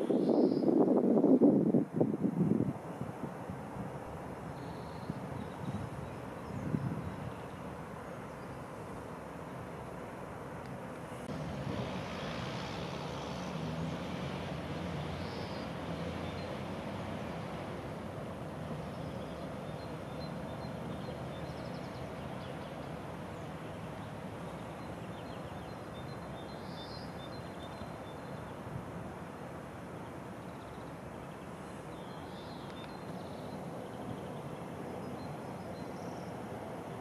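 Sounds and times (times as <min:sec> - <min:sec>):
outdoor background noise: 0:00.0 - 0:37.0
small birds chirping: 0:18.8 - 0:28.6, 0:30.0 - 0:36.4.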